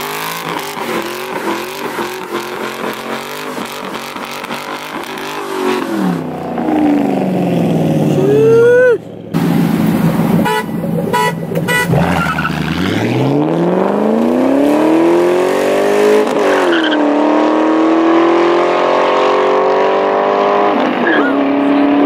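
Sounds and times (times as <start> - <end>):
car engine accelerating: 0.0 - 22.0
car horn toots: 10.4 - 12.3.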